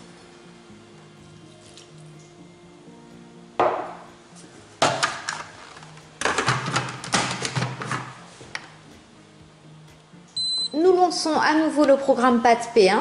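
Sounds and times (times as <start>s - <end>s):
faint background music: 0.0s - 13.0s
lid knocking on metal bowl: 3.6s - 4.0s.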